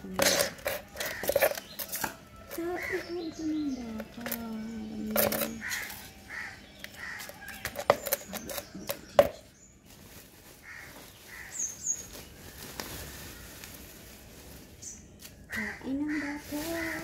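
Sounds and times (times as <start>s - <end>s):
plastic sack rustling: 0.0s - 17.0s
trowel scraping and knocking: 0.1s - 2.2s, 7.2s - 9.4s
crows cawing: 0.9s - 2.1s, 5.5s - 7.6s, 10.6s - 11.8s, 15.5s - 17.0s.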